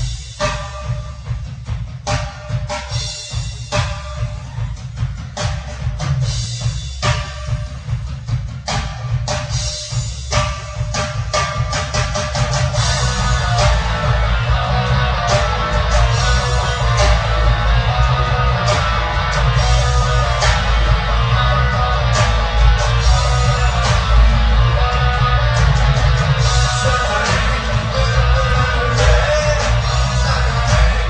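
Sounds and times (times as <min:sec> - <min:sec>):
bass: 0:00.0 - 0:31.0
drums with cymbal hits: 0:00.0 - 0:31.0
distorted electric guitar: 0:09.5 - 0:31.0.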